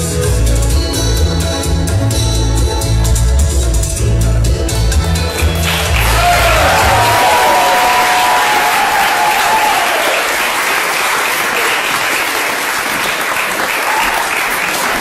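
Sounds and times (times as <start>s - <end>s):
song held notes: 0.0s - 7.6s
guests applauding: 5.3s - 15.0s.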